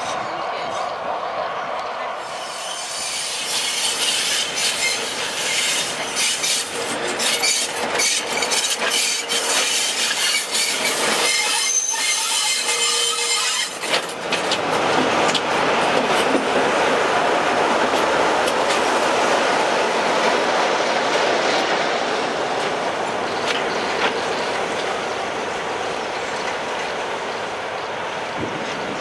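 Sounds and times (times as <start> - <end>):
train wheels rumbling and clicking: 1.8 - 29.0
wheel squeal: 2.2 - 14.0.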